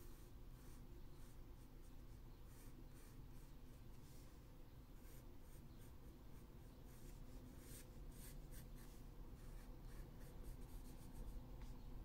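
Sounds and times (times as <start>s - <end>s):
pencil scratching on paper: 2.5s - 3.6s, 5.0s - 11.4s.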